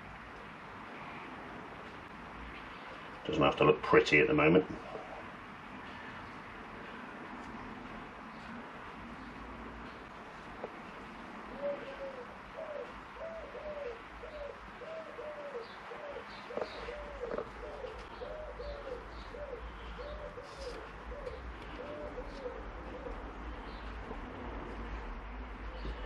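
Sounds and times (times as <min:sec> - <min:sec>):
pigeon cooing: 0:04.8 - 0:06.0, 0:11.4 - 0:25.0.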